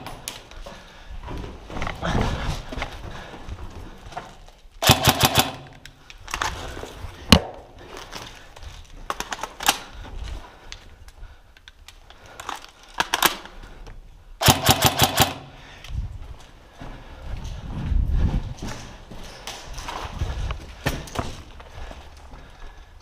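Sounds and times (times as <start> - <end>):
airsoft rifle firing bursts: 4.8 - 5.8, 14.4 - 15.6.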